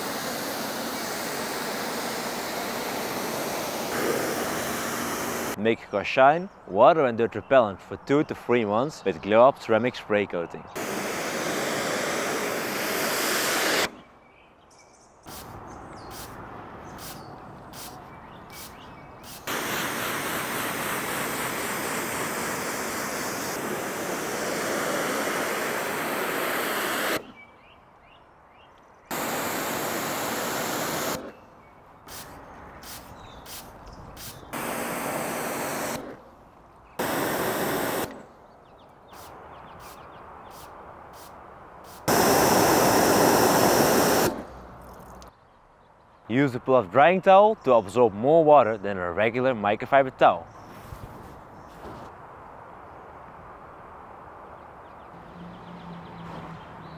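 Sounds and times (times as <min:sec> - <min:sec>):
hose water jet hissing: 0:00.0 - 0:05.6, 0:10.8 - 0:14.0, 0:15.3 - 0:27.3, 0:29.1 - 0:31.4, 0:32.1 - 0:36.2, 0:37.0 - 0:38.2, 0:39.2 - 0:45.3.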